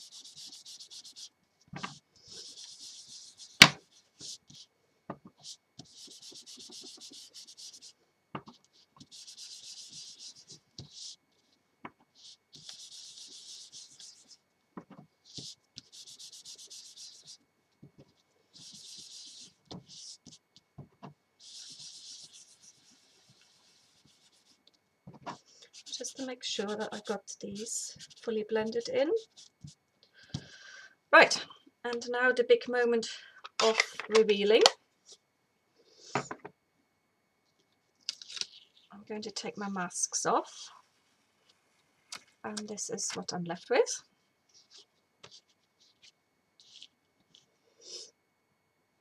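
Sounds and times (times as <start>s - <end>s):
wipe rubbing on cardstock: 0.0s - 4.7s, 5.8s - 11.2s, 12.2s - 14.4s, 15.3s - 17.4s, 18.1s - 20.4s, 21.4s - 24.6s, 44.5s - 48.0s.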